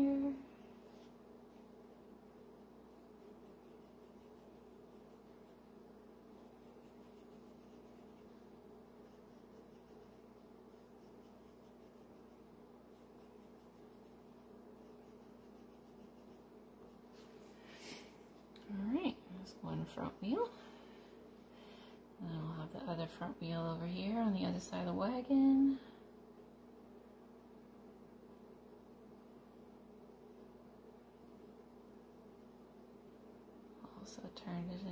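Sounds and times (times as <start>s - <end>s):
steady low hum: 0.0s - 34.9s
colored pencil scratching on paper: 2.8s - 17.4s.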